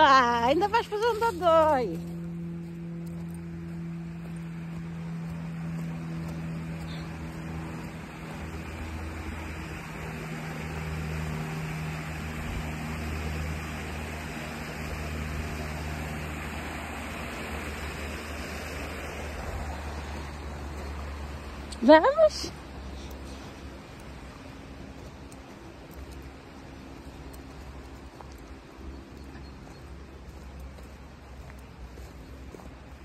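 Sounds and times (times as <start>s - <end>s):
low steady hum: 0.0s - 33.0s
water rushing over weir: 7.2s - 22.9s.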